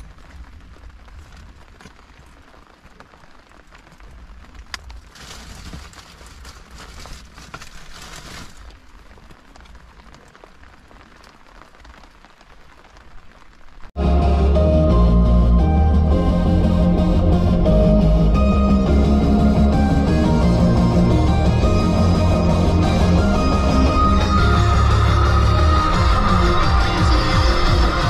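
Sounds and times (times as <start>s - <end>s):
rain pattering on a car: 0.0s - 14.0s
plastic bags rustling: 5.0s - 8.9s.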